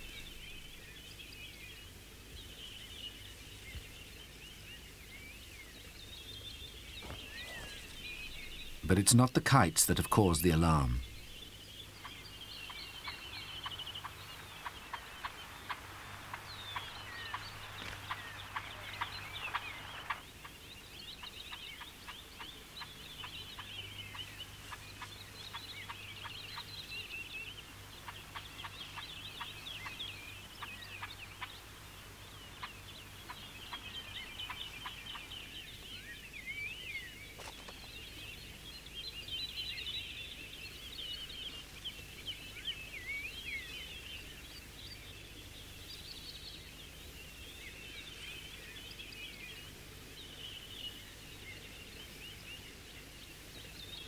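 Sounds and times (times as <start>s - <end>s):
magpies chattering alarm calls: 7.0s - 26.9s, 27.5s - 35.5s.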